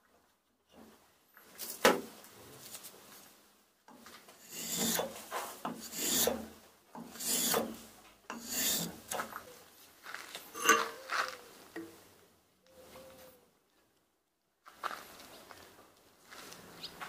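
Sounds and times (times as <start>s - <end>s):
rasp scraping wood: 4.4s - 9.4s.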